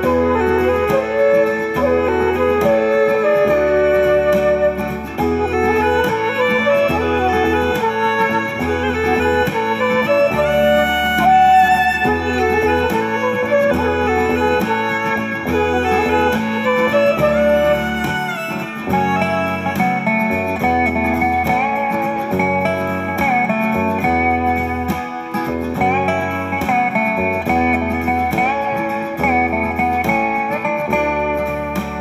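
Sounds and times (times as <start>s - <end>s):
instrumental music with bass beat: 0.0s - 32.0s
plucked and bowed strings: 0.0s - 32.0s.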